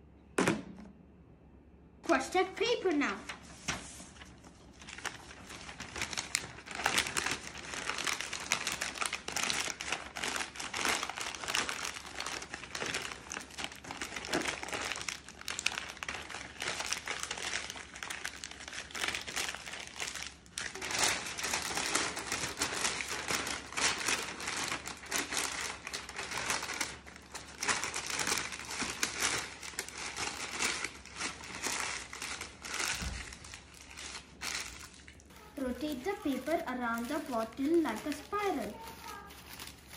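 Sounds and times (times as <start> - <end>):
newspaper being crumpled: 2.8 - 39.9.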